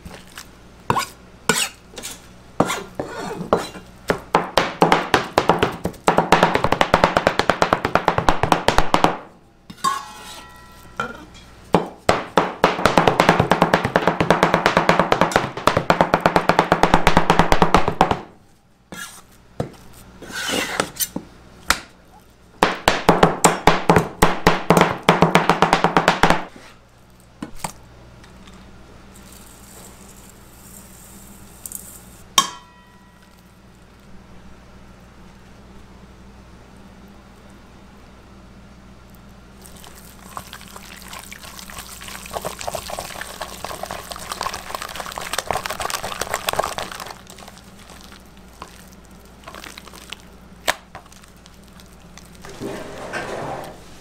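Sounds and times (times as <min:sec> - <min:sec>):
cleavers chopping on cutting board: 0:00.9 - 0:09.3, 0:11.8 - 0:18.3, 0:22.6 - 0:26.5.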